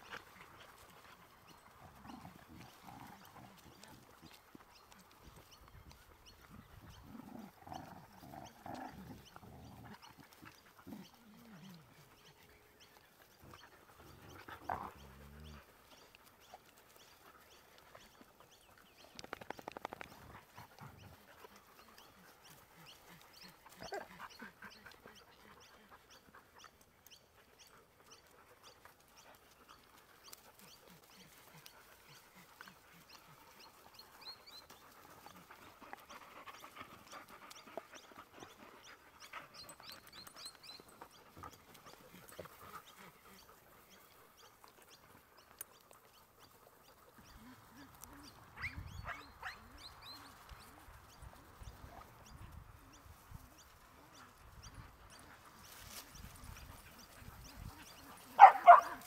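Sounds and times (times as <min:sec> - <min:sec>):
dogs growling: 0:00.0 - 0:05.2, 0:06.0 - 0:17.2, 0:30.4 - 0:45.2
dogs panting: 0:00.0 - 0:59.0.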